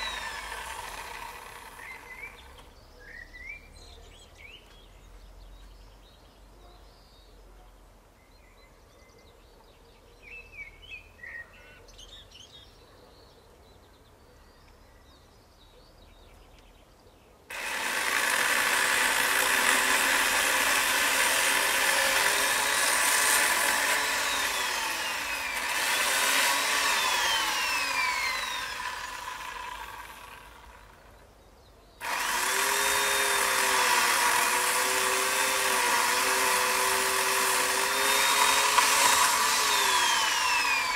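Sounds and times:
chainsaw cutting: 0.0 - 2.7, 17.5 - 31.1, 32.0 - 40.9
faint bird chirps: 1.8 - 17.4.

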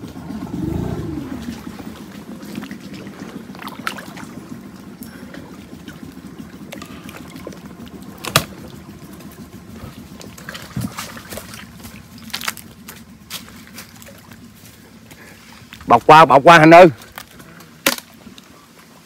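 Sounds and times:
water sloshing and trickling: 0.0 - 16.1
sharp crack: 17.8 - 18.2.

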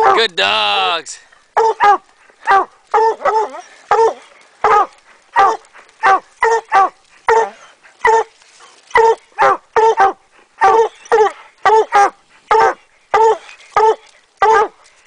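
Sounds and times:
hounds barking: 0.0 - 0.3, 1.6 - 14.9.

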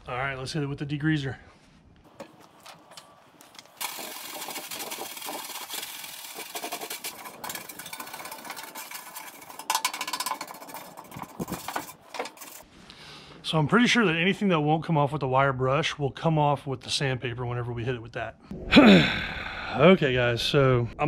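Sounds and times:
spray hissing: 3.8 - 7.8.

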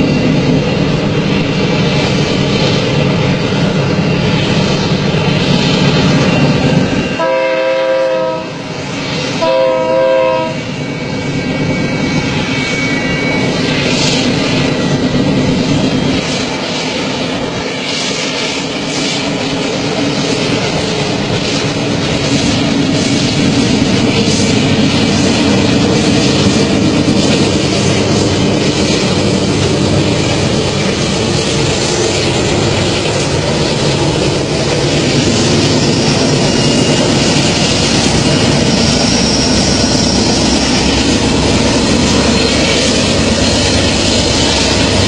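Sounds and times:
train rumbling: 0.0 - 45.0
train horn blasts: 7.1 - 8.8, 9.4 - 10.8.

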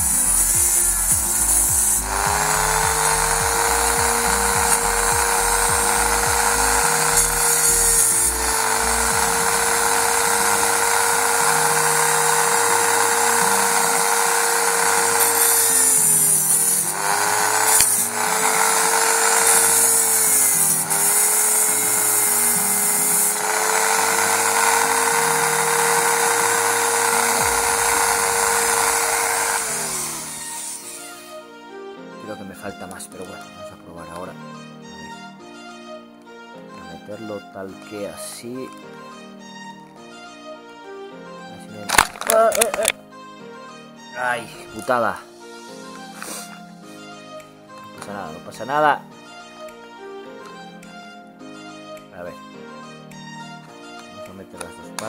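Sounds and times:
power tool whining: 0.0 - 31.4.

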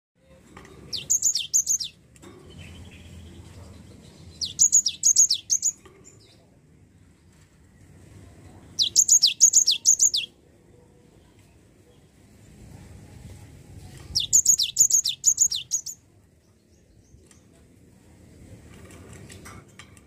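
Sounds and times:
bird singing high clear notes: 0.9 - 2.0, 4.4 - 5.8, 8.8 - 10.4, 14.1 - 16.0.

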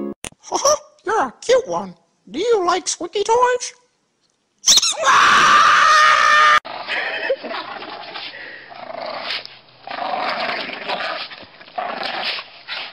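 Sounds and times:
dogs growling: 6.7 - 12.9.

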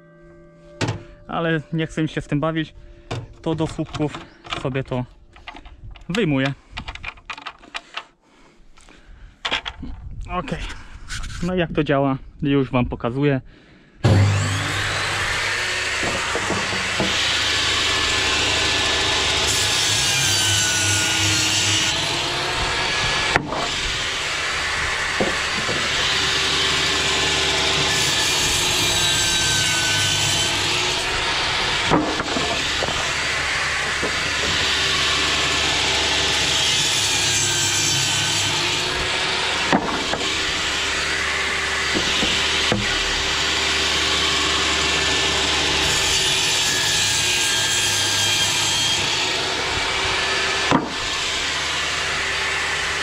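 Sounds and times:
saw blade rasping through wood: 14.0 - 53.0
table saw running: 14.0 - 53.0.

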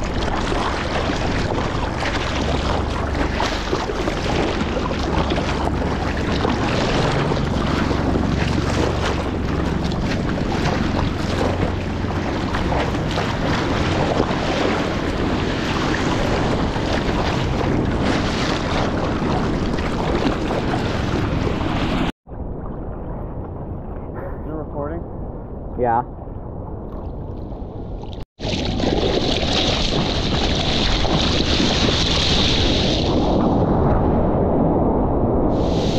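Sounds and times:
water lapping: 0.0 - 22.1, 28.0 - 33.3
water splashing around surfboard: 0.0 - 23.8, 26.9 - 33.9
wind buffeting microphone: 0.0 - 35.9.

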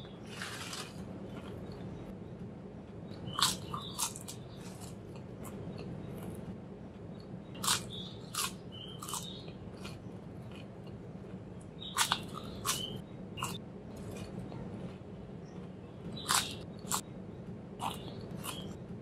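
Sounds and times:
faint low hum: 0.0 - 19.0
potato chips crunching: 0.3 - 1.8, 3.3 - 5.2, 7.6 - 11.0, 11.9 - 14.3, 16.2 - 17.0.

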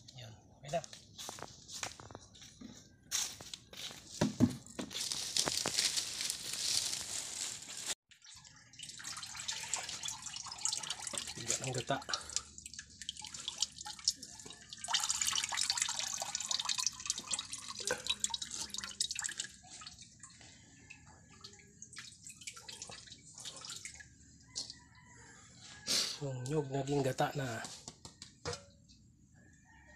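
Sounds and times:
liquid dripping into bucket: 8.2 - 24.8.

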